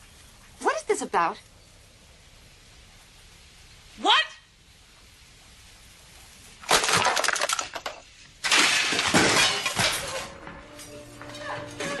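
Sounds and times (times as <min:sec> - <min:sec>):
dishes and glass crashing: 0:06.7 - 0:10.4.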